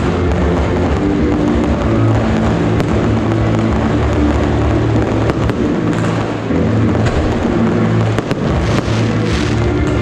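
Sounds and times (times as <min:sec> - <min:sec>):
loud music: 0:00.0 - 0:10.0
firework pops: 0:05.0 - 0:10.0.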